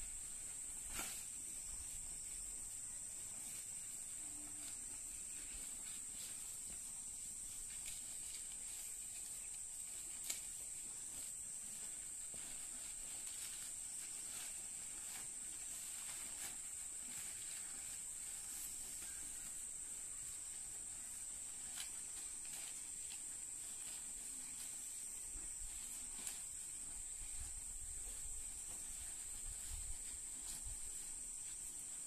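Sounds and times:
cattle chewing grass: 0:03.0 - 0:32.0.

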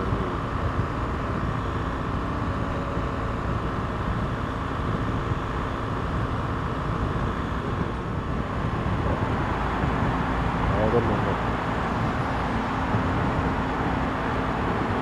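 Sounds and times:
road noise: 0:00.0 - 0:15.0
wind noise: 0:00.0 - 0:15.0.

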